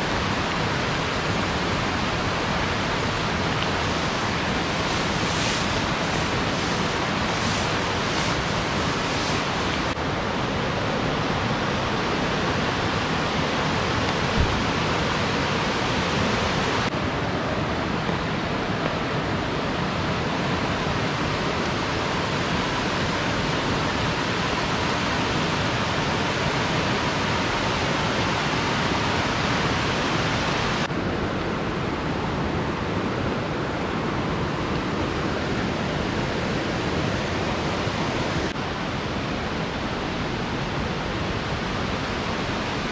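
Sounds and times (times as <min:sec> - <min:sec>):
river flowing over rocks: 0:00.0 - 0:42.9.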